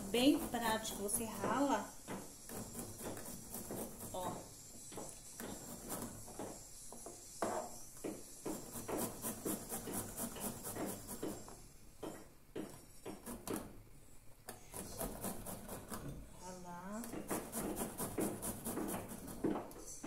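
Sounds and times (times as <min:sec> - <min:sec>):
garlic rasping on metal grater: 0:00.0 - 0:01.8.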